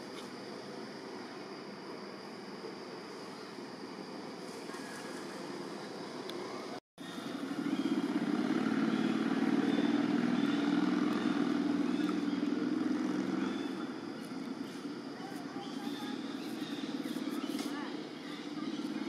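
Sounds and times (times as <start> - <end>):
vehicle engine running: 7.0 - 19.0.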